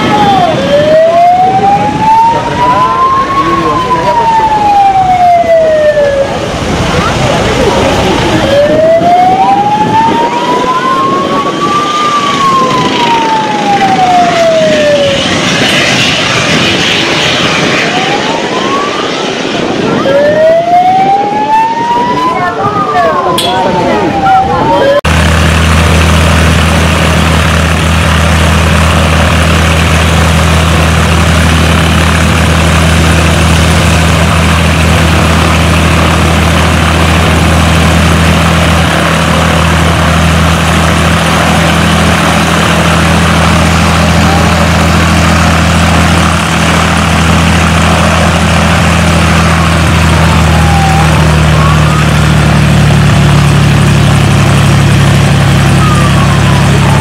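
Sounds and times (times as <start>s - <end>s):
propeller plane engine idling: 10.6s - 17.9s, 25.1s - 57.0s.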